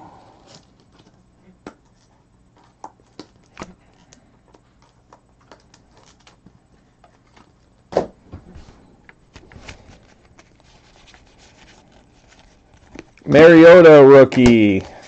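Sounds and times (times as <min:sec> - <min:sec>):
cards scraping and rustling: 0:09.3 - 0:15.0.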